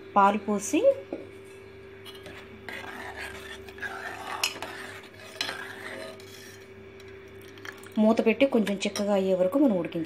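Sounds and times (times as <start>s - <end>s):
metal ladle scraping aluminium pot: 2.0s - 6.7s.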